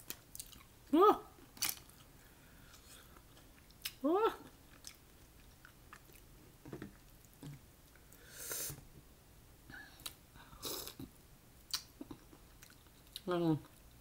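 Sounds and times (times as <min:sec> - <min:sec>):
chewing: 0:00.3 - 0:00.7, 0:04.6 - 0:06.3, 0:11.7 - 0:13.8.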